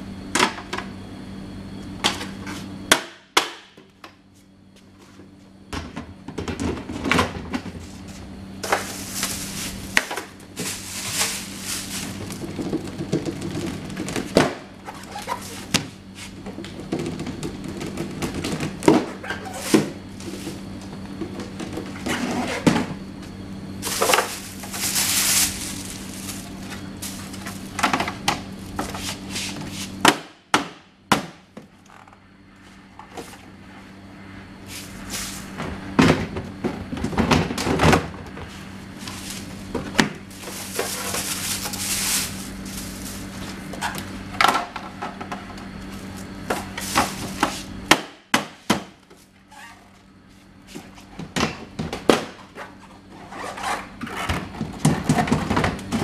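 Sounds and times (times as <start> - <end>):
steady low hum: 0.0 - 56.0
rustling: 10.5 - 12.5, 23.8 - 27.8, 40.3 - 44.0.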